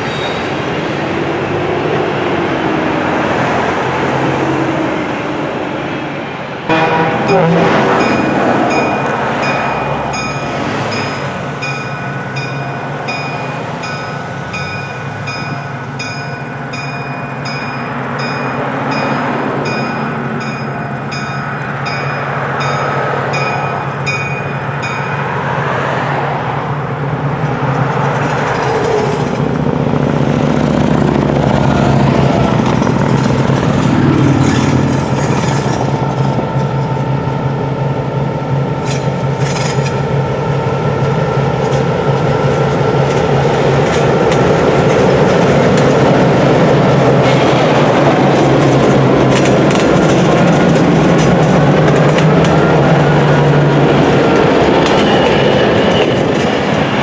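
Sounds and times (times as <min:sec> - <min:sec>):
diesel locomotive engine drone: 0:00.0 - 0:57.0
bell ringing: 0:06.7 - 0:25.3
wheels clicking over rail joints: 0:27.4 - 0:37.2, 0:38.8 - 0:40.2, 0:41.4 - 0:57.0.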